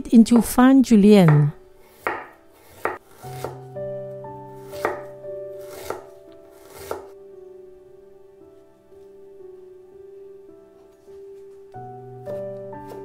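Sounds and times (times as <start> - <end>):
soft background music: 0.0 - 13.0
knife slicing on wooden board: 4.8 - 7.1.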